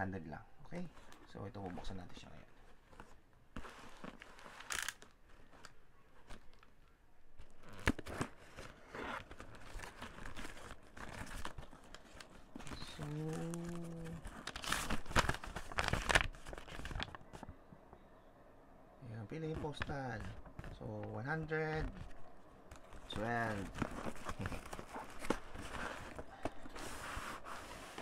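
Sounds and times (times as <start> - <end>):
tape and paper tearing: 4.4 - 5.1
paper crinkling unfolded: 7.4 - 17.5, 21.8 - 28.0.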